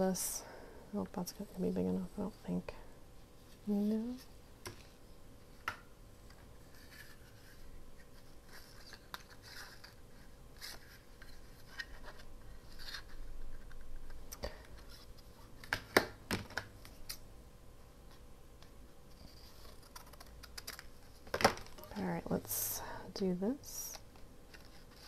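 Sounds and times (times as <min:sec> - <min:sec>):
paper rustling and scraping: 0:06.6 - 0:13.8, 0:19.1 - 0:21.3.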